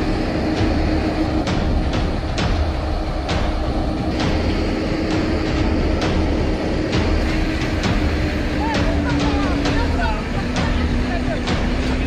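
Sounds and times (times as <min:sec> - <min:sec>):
machinery rumble: 0:00.0 - 0:12.0.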